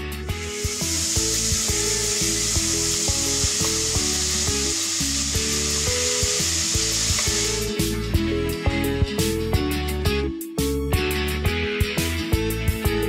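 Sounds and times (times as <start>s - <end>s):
background music with plucked notes: 0.0s - 13.0s
vegetables sizzling in oil: 0.1s - 8.1s.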